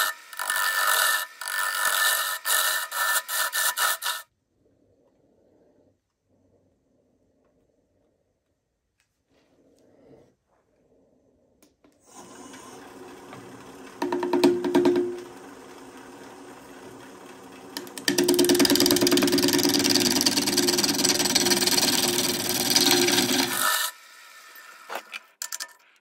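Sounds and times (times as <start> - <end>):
tool cutting spinning wood: 0.0 - 4.3, 12.0 - 25.8
wood lathe humming: 0.0 - 4.3, 12.0 - 25.3.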